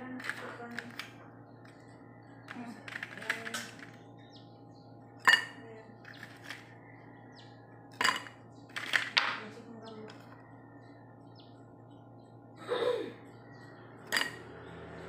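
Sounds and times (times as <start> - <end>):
ice cubes rattling: 2.6 - 3.9, 8.0 - 9.2
ice clinking against glass: 8.0 - 8.4, 14.1 - 14.4.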